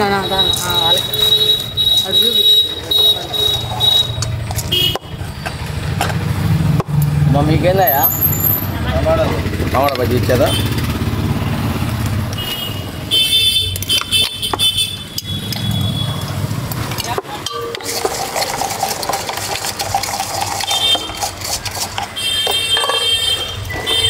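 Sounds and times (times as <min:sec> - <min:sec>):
spoon scraping and clinking in bowl: 0:17.4 - 0:24.0.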